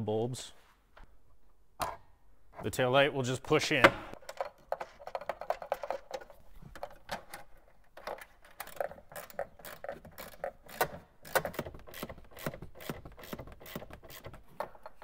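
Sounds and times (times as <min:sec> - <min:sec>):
hands handling plastic parts: 0:04.1 - 0:15.0.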